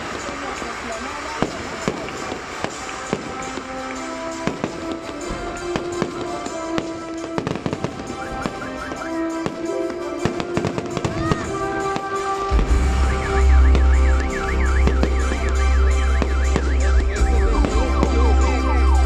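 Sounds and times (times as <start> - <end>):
fireworks bangs and crackling: 0.0 - 19.0
music with sustained notes: 0.0 - 19.0
deep rumble: 12.5 - 19.0.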